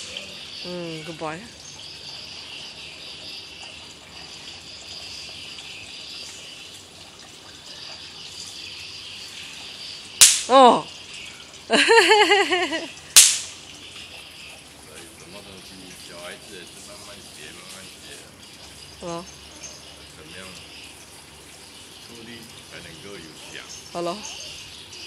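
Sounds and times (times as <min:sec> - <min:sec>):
bang snaps cracking on asphalt: 0:10.2 - 0:10.5, 0:13.2 - 0:13.6
faint high hiss: 0:22.0 - 0:23.8.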